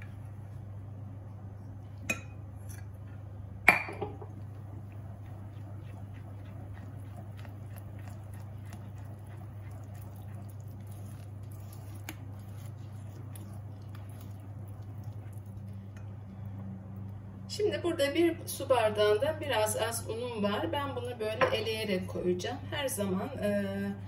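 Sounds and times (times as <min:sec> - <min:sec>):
steady low hum: 0:00.0 - 0:24.0
spatula squelching and scraping batter: 0:04.5 - 0:16.4.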